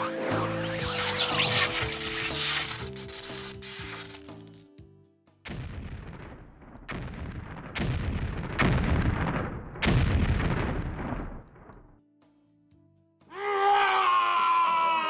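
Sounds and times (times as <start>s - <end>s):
heavy booms with rumbling tail: 5.5s - 11.7s.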